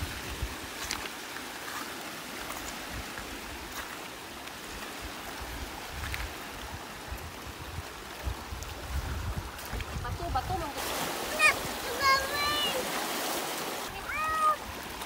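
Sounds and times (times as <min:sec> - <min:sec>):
wind rumble on microphone: 0:00.0 - 0:01.1, 0:04.6 - 0:12.2
small waves washing onto stony beach: 0:00.0 - 0:15.0.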